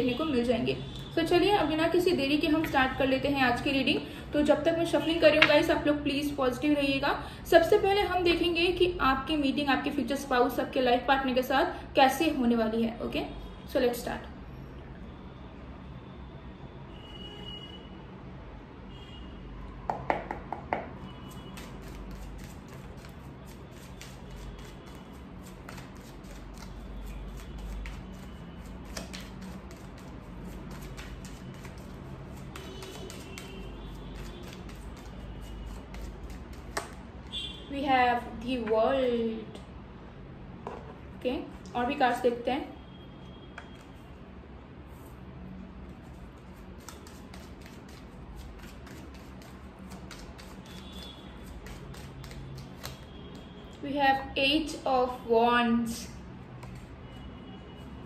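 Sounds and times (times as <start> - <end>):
cards being shuffled: 21.6 - 33.6, 34.2 - 37.0, 46.8 - 53.0.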